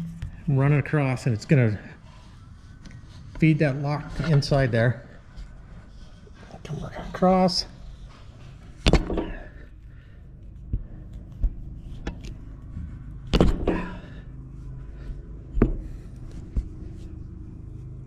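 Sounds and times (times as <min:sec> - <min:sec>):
low steady hum: 0:00.0 - 0:18.0
loud thumps: 0:13.3 - 0:14.0.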